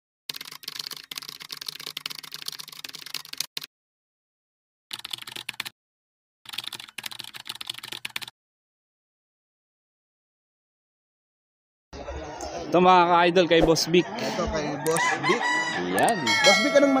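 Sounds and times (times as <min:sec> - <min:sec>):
fast keyboard typing: 0:00.3 - 0:03.7, 0:04.9 - 0:05.7, 0:06.5 - 0:08.3.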